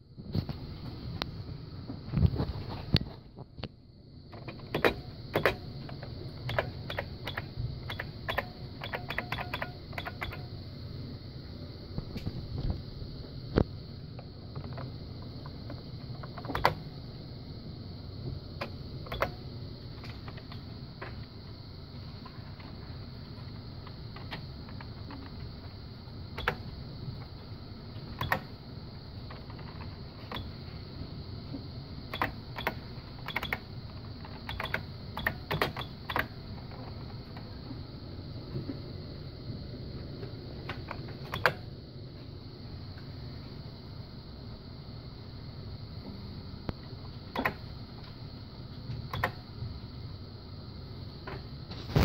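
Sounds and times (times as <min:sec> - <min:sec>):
background hum: 0:00.0 - 0:52.0
mechanical keyboard clacking: 0:06.5 - 0:10.4, 0:32.1 - 0:33.6, 0:34.4 - 0:36.3.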